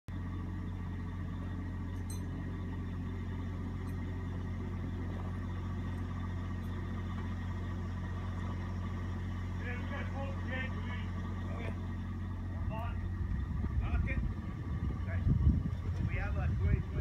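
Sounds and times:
diesel engine idling: 0.1s - 17.0s.

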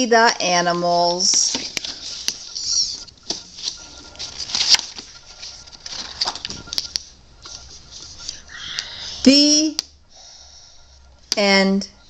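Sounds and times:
paper rustling: 1.3s - 6.8s.

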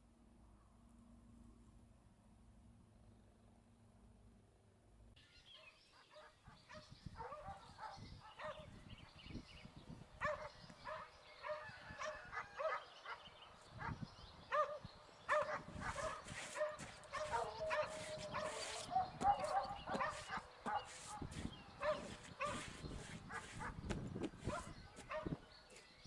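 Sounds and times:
dogs barking: 6.1s - 8.7s, 10.2s - 23.8s, 24.4s - 25.4s.

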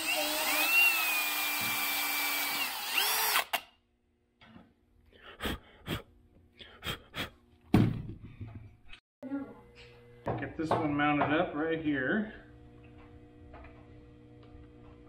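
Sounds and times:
cordless drill whine: 0.0s - 3.6s.

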